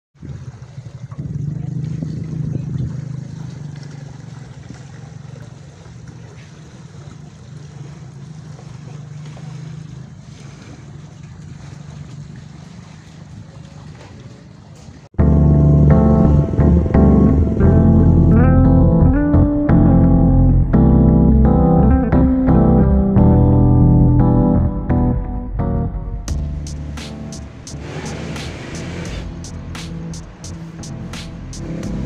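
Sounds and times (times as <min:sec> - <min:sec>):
wind on microphone: 0:00.2 - 0:03.5
engine drone: 0:00.2 - 0:13.2, 0:15.2 - 0:32.0.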